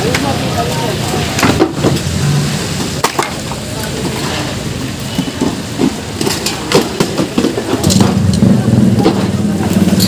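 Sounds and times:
wooden boards and metal clattering: 0:01.3 - 0:02.1, 0:02.8 - 0:04.4, 0:05.1 - 0:10.0.

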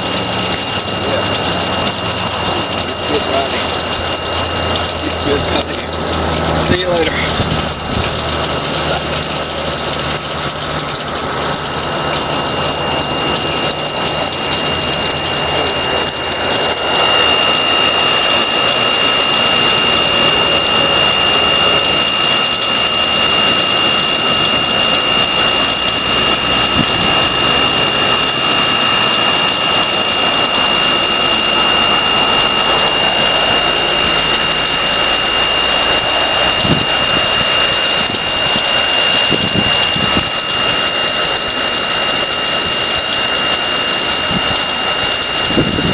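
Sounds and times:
aerator mechanical drone: 0:00.0 - 0:45.9
churning water: 0:00.0 - 0:45.9
high whine: 0:00.0 - 0:45.9.

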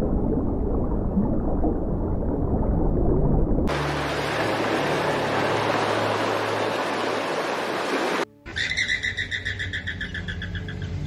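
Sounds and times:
surf washing over rocks: 0:03.7 - 0:08.3
bird chattering call: 0:08.5 - 0:11.0.

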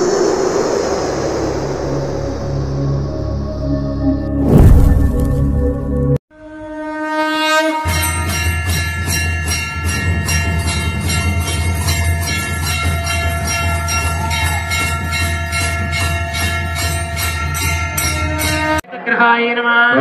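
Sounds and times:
low hum: 0:00.0 - 0:06.2
bell ringing rhythmically: 0:08.0 - 0:18.8.

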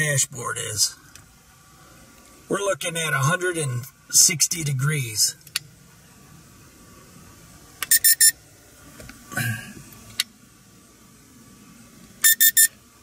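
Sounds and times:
thermometer short high beeps: 0:07.9 - 0:08.4, 0:12.2 - 0:12.8.

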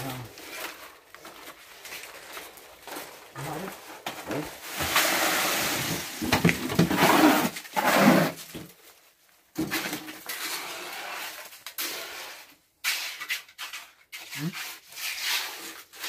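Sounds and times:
metal tool scraping wet concrete: 0:10.2 - 0:16.0.

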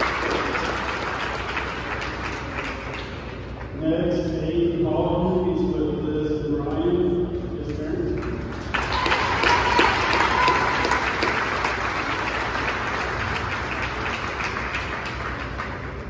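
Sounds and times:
crowd applauding: 0:00.0 - 0:03.8, 0:08.2 - 0:16.0.

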